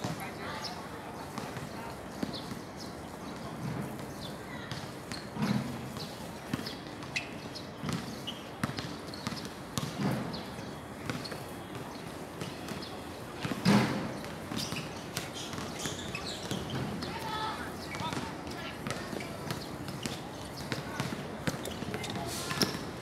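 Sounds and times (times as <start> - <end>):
basketball bouncing on hard court: 4.7 - 17.1, 18.0 - 22.8.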